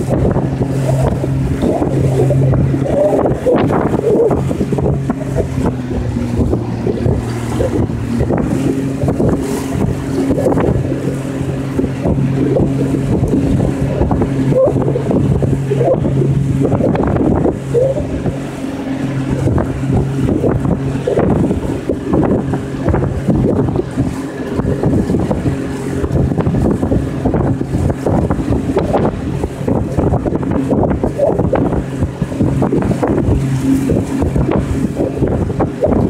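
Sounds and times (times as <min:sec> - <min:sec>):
boat motor running: 0:00.0 - 0:36.0
wind noise on microphone: 0:00.0 - 0:36.0.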